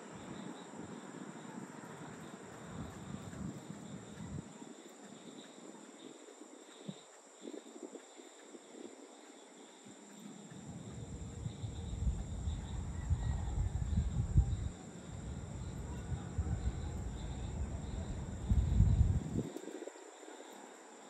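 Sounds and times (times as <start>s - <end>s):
crickets trilling: 0.0s - 21.0s
low uneven rumble: 10.6s - 19.5s.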